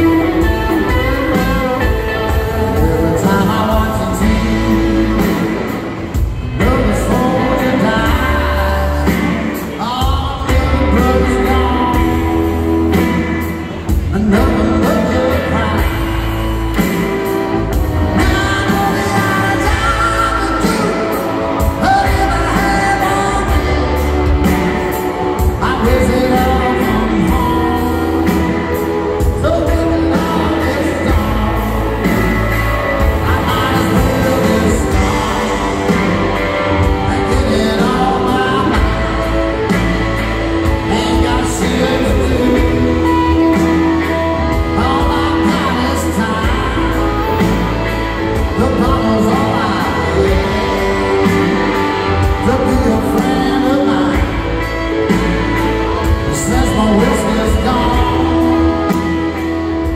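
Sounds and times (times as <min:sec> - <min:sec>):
bass guitar: 0:00.0 - 0:59.9
drums: 0:00.0 - 0:59.9
electric guitar: 0:00.0 - 0:59.9
man singing: 0:00.0 - 0:59.9.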